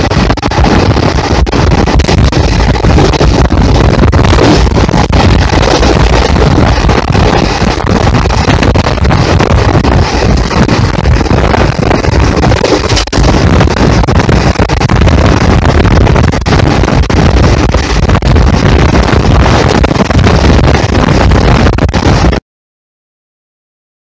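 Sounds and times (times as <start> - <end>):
train wheels running on rails: 0.0 - 18.0
wind buffeting microphone: 0.0 - 22.4.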